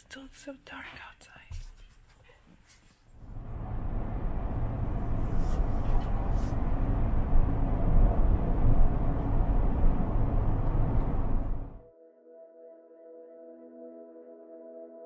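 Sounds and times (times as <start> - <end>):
car cabin road noise: 3.2 - 11.8.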